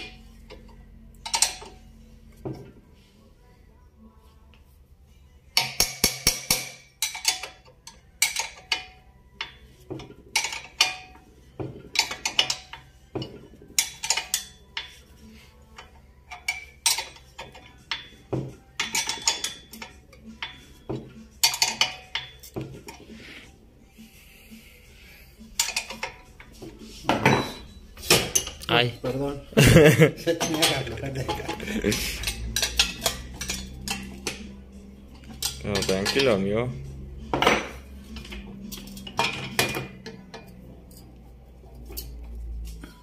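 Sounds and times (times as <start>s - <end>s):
wrench clinking on metal nut: 0.0s - 1.8s, 5.6s - 11.2s, 11.8s - 15.0s, 15.8s - 20.6s, 21.3s - 23.0s, 25.6s - 26.4s, 30.4s - 34.5s, 35.2s - 36.3s.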